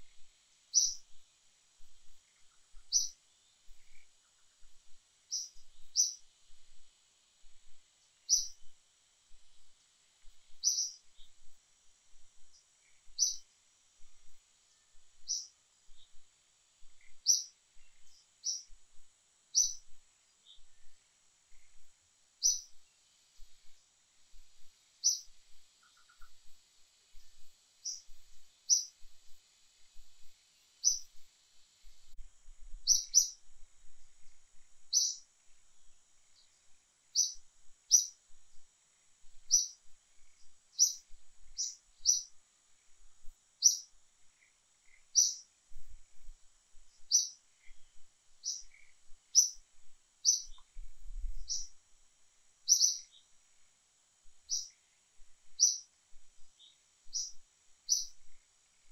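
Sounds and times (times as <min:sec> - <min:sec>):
bird chirping: 0:00.1 - 0:01.2, 0:01.8 - 0:06.3, 0:07.7 - 0:08.8, 0:09.5 - 0:11.6, 0:12.4 - 0:16.2, 0:16.8 - 0:32.2, 0:32.8 - 0:33.4, 0:34.6 - 0:35.3, 0:37.1 - 0:38.2, 0:39.4 - 0:42.4, 0:43.6 - 0:45.5, 0:46.9 - 0:51.8, 0:52.6 - 0:53.4, 0:54.4 - 0:54.9, 0:55.5 - 0:58.9.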